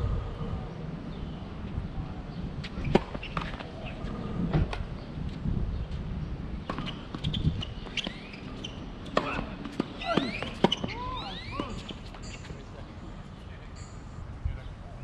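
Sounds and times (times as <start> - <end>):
tennis balls hit with rackets: 6.6 - 12.5.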